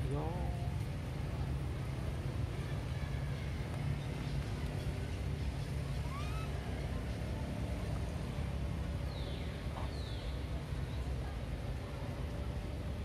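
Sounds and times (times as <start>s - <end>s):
faint high chirps: 5.9s - 6.8s.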